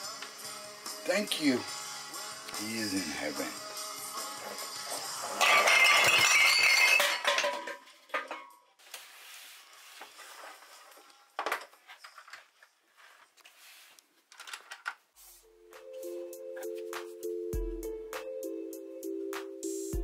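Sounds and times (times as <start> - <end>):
hard objects clinking and rattling: 5.0 - 8.5.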